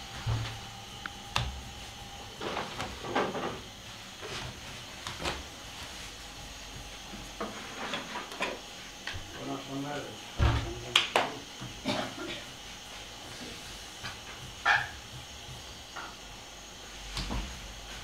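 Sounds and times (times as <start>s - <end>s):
steady background hum: 0.0s - 18.0s
knocks of dough being cut: 13.9s - 16.2s.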